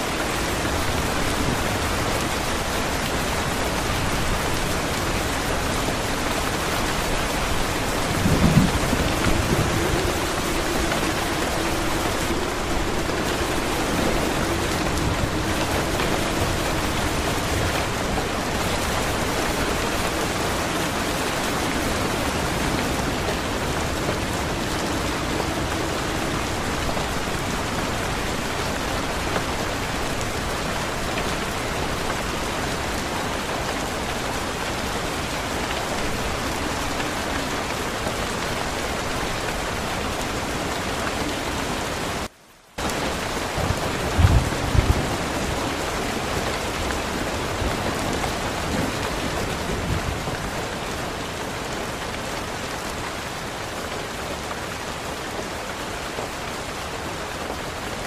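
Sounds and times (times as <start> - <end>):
steady rain falling: 0.0 - 58.0
low rumbles of thunder: 0.1 - 33.4, 43.1 - 50.6.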